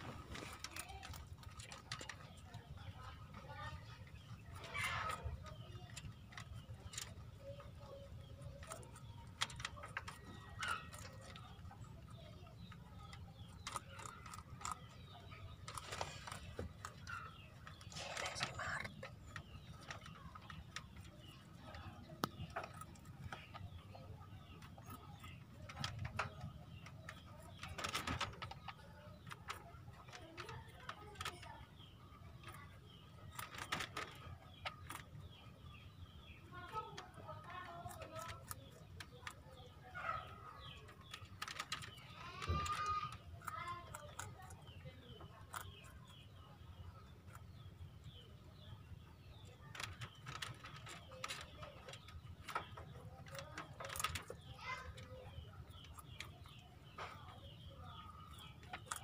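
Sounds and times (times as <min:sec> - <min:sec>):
rabbit crunching carrot: 0:00.0 - 0:59.0.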